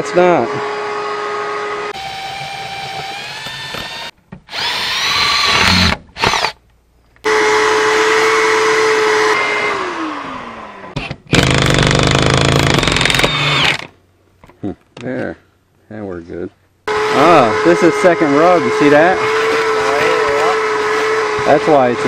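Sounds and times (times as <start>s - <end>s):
motor hum winding down: 0.8s - 6.5s, 7.3s - 12.0s, 16.9s - 22.0s
cordless drill driving screws: 1.9s - 6.6s, 11.3s - 13.9s, 18.3s - 21.8s.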